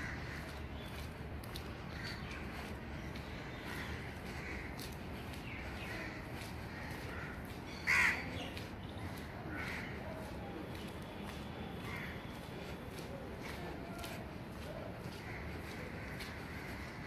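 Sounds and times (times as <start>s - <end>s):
crows cawing: 0.0s - 0.9s, 1.9s - 10.0s, 11.8s - 12.3s, 15.1s - 17.0s.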